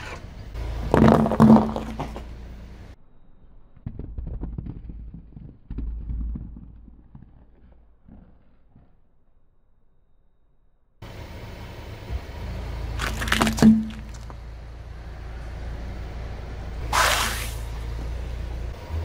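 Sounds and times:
bath bombs crunching under tyre: 0.8 - 2.3, 13.0 - 14.4.

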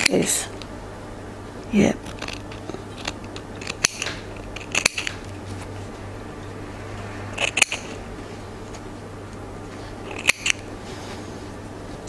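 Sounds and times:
low steady hum: 0.0 - 12.0
scissors snipping fabric: 2.0 - 5.2, 7.4 - 8.0, 10.1 - 10.6.

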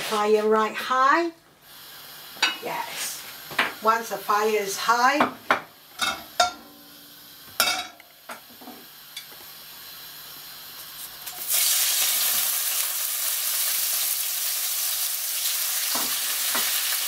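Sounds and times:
fish sizzling in hot oil: 1.7 - 4.5, 6.8 - 17.0.

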